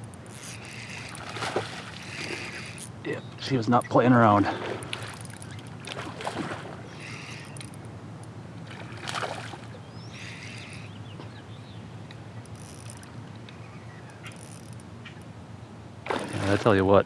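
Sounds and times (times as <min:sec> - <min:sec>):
fish splashing and thrashing: 0:00.0 - 0:03.2, 0:03.8 - 0:08.0, 0:08.6 - 0:10.9, 0:16.0 - 0:16.8
water noise: 0:00.0 - 0:17.0.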